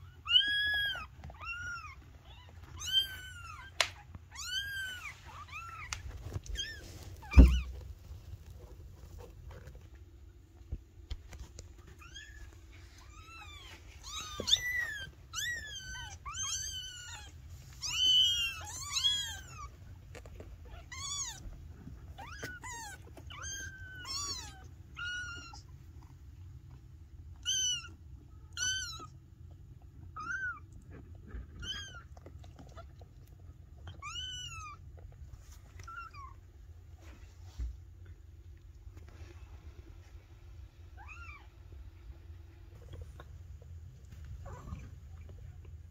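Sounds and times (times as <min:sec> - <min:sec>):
kittens meowing: 0:00.1 - 0:07.8, 0:11.8 - 0:19.8, 0:20.6 - 0:25.8, 0:27.3 - 0:29.2, 0:30.0 - 0:33.0, 0:33.8 - 0:34.8.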